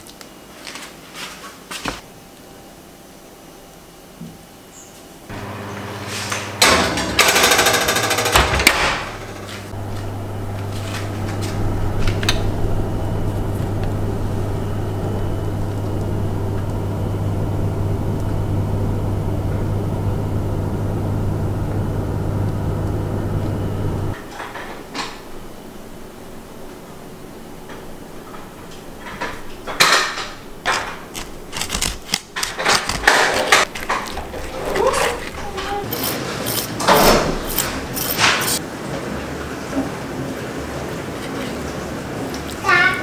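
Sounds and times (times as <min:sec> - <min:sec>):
electric oven humming: 0:05.2 - 0:32.4, 0:33.0 - 0:43.0
loud clatter: 0:06.2 - 0:14.1.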